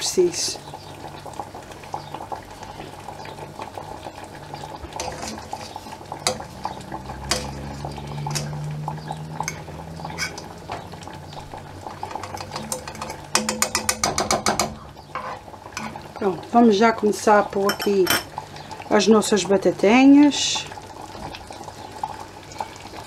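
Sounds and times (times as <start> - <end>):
butter bubbling: 0.0 - 23.0
fork scraping a frying pan: 5.0 - 6.4, 7.3 - 7.6, 8.2 - 8.6, 9.5 - 10.4, 12.0 - 16.0.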